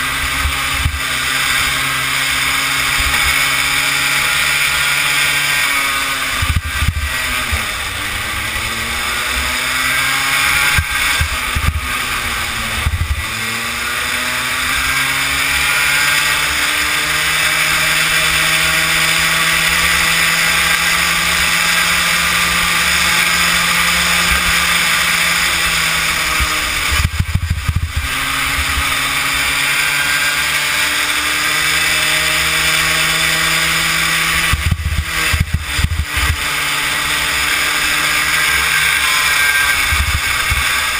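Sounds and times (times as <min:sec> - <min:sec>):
kart engine revving: 0:00.0 - 0:40.9.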